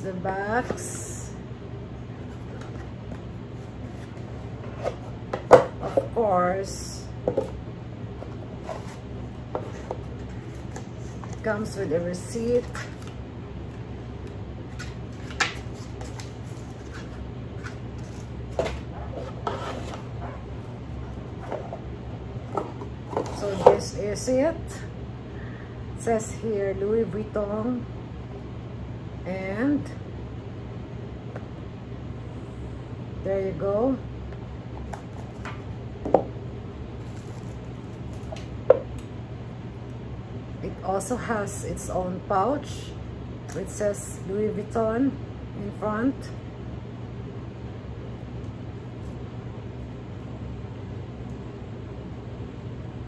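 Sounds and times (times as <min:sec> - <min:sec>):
air conditioner hum: 0:00.0 - 0:53.0
paper packaging rustling: 0:37.0 - 0:38.4
plastic wrapper crinkling: 0:37.0 - 0:38.4.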